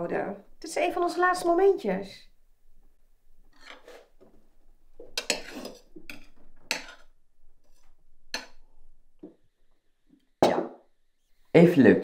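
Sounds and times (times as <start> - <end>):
cutlery clinking on plates: 5.1 - 7.1.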